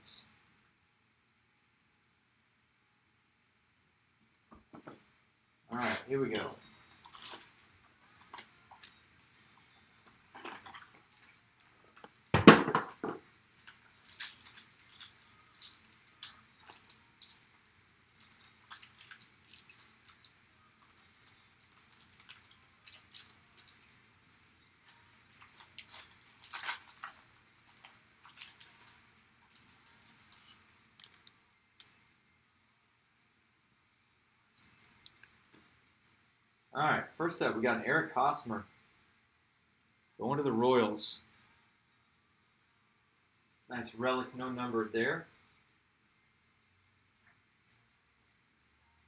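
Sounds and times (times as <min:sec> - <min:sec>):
plastic wrapping crinkling and tearing: 0:06.3 - 0:12.2, 0:13.4 - 0:31.9, 0:34.5 - 0:35.3.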